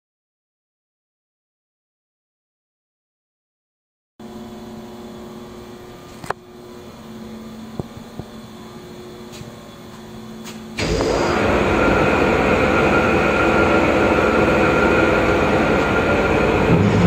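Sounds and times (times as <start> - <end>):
industrial machinery hum: 4.2 - 17.0
mixer drive running: 4.2 - 17.0.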